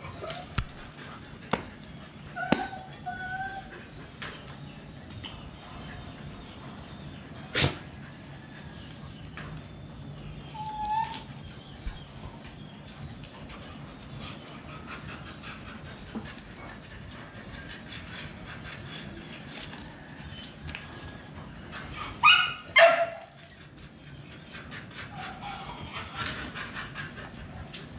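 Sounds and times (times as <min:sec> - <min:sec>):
dog whining: 0:00.0 - 0:01.0, 0:02.2 - 0:04.2, 0:10.4 - 0:12.0, 0:17.8 - 0:20.6, 0:21.9 - 0:26.6
dogs moving on tiles: 0:00.0 - 0:27.9.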